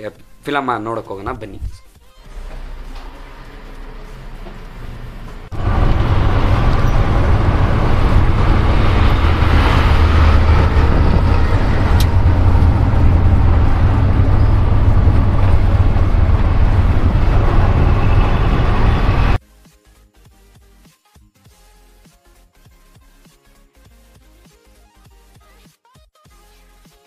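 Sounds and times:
road and traffic noise: 2.3 - 19.4
auto-rickshaw engine rumbling: 2.6 - 19.4.

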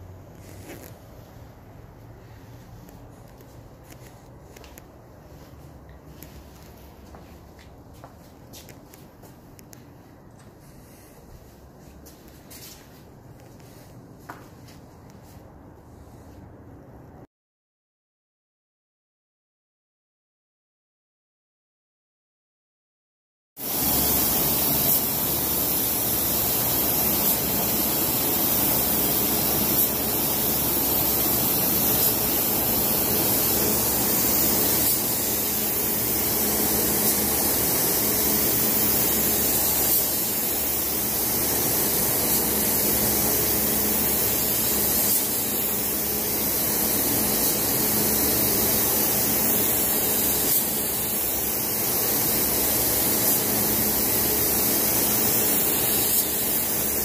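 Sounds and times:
spray gun hissing: 10.6 - 11.5, 23.6 - 57.0.

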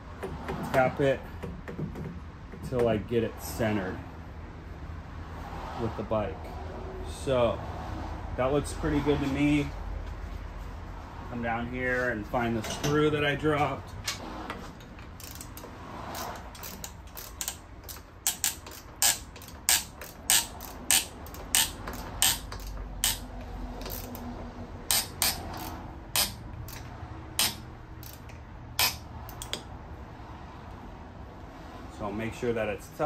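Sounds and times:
hand ratchet clicking: 14.1 - 29.7.

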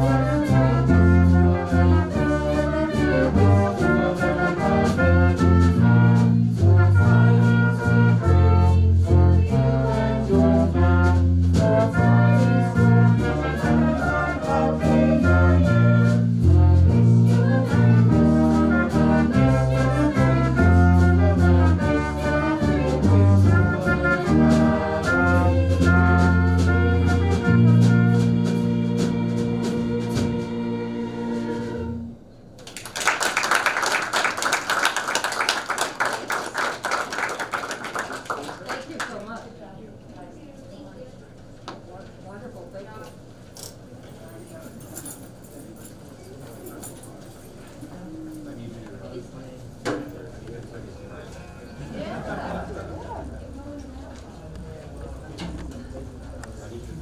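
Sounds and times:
live ensemble music: 0.0 - 38.1, 49.1 - 57.0.

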